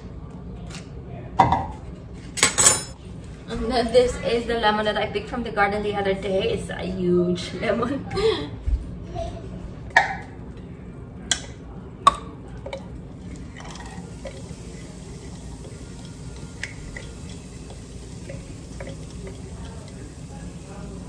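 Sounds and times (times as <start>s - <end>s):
butter sizzling in a pan: 14.0s - 21.0s.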